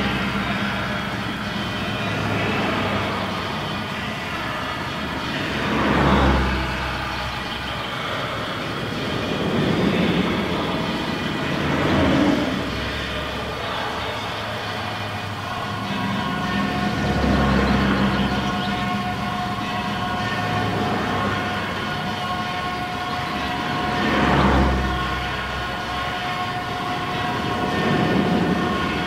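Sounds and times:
highway traffic rushing: 0.0s - 29.0s.

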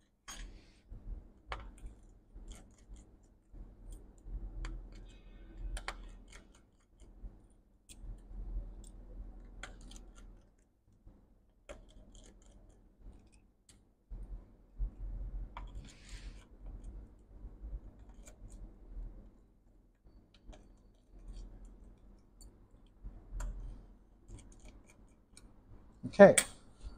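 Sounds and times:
small screws clicking and tapping: 1.4s - 7.2s, 7.8s - 10.7s, 11.6s - 13.8s, 20.1s - 25.5s.

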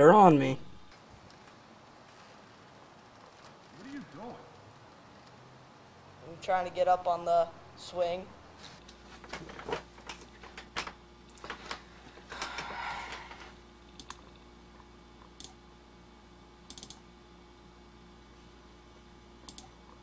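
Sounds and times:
faint steady hum: 0.0s - 20.0s
keyboard and mouse clicks: 13.9s - 14.4s, 15.4s - 15.6s, 16.7s - 17.0s, 19.4s - 19.7s.

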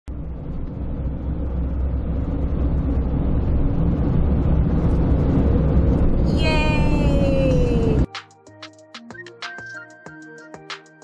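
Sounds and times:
road and engine rumble in vehicle: 0.1s - 8.1s.

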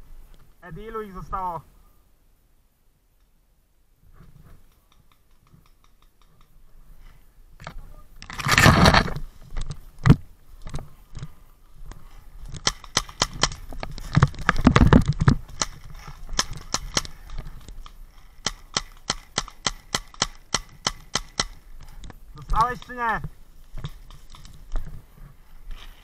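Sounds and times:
paintball marker shots: 18.4s - 21.6s.

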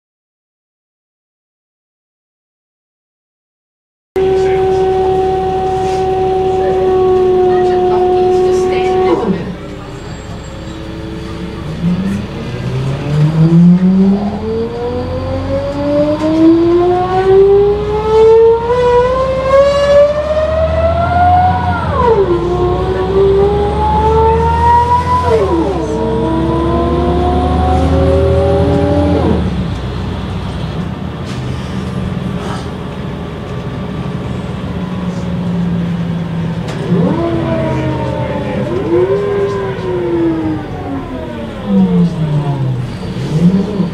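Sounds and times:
diesel engine low rumble: 4.2s - 43.9s
gearbox whining: 33.5s - 43.9s.

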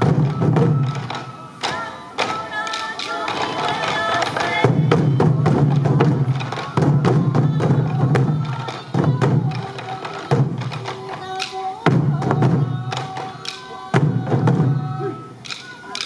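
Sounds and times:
bamboo flute melody: 0.0s - 16.0s
light stick strokes: 0.0s - 16.0s
taiko drums beaten in unison: 0.0s - 16.0s.

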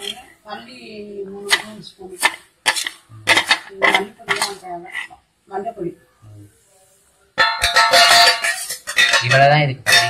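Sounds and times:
loud metallic clang: 7.4s - 10.0s.

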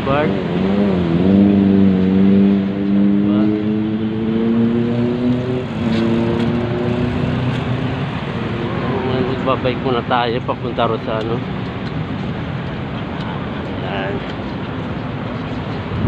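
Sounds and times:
vehicle engine accelerating: 0.0s - 12.5s.

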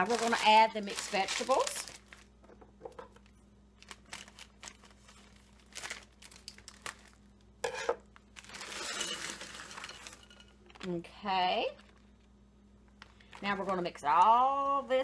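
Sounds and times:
plastic bag crinkling: 0.0s - 2.4s, 3.2s - 7.4s, 8.1s - 12.3s.

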